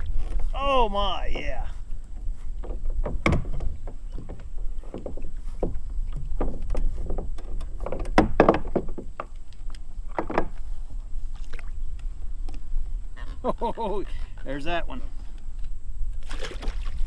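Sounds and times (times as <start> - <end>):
water splashing: 16.2 - 17.0.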